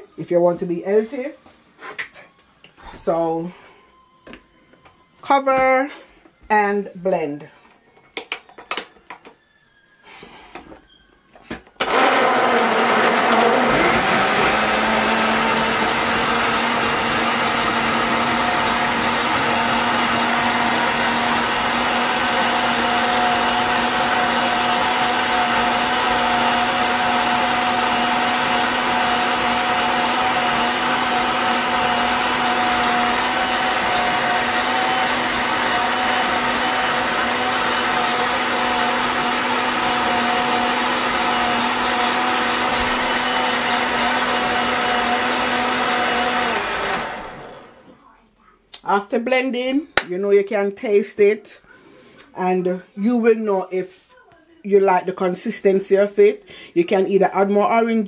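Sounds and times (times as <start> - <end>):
blender motor running: 11.8 - 48.0.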